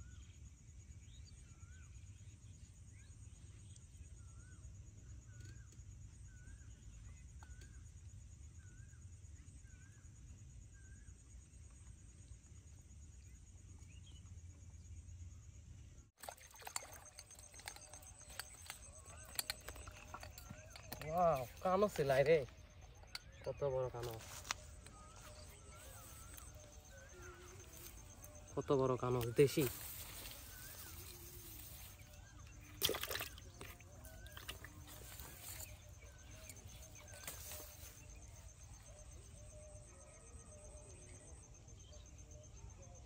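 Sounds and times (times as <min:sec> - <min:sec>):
splashing or handling noise: 0:16.2 - 0:22.0, 0:29.2 - 0:37.9.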